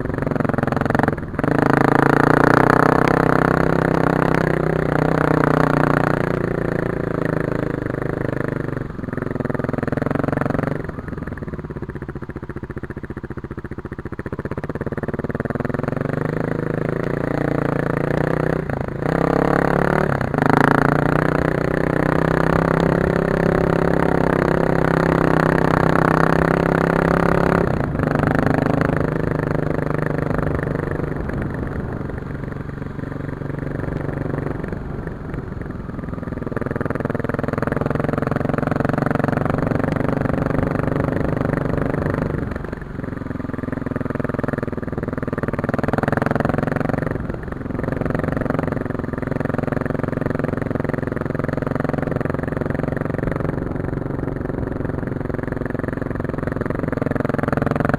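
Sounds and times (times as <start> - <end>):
dirt bike engine revving: 15.8 - 32.0.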